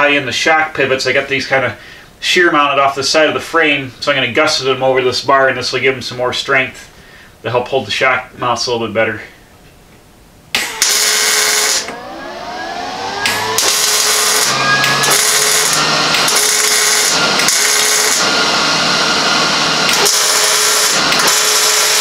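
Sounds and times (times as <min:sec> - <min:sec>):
welding arc crackling buzz: 0:10.5 - 0:11.9, 0:13.2 - 0:22.0.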